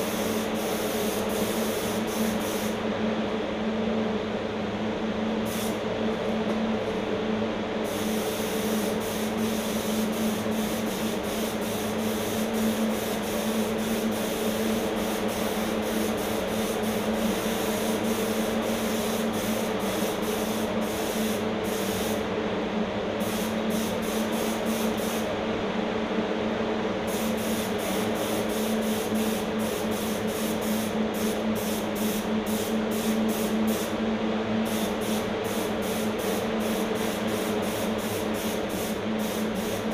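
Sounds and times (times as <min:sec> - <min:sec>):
spray gun hissing: 0:00.0 - 0:02.8, 0:07.8 - 0:22.2, 0:23.2 - 0:25.3, 0:27.1 - 0:33.9, 0:34.7 - 0:39.9.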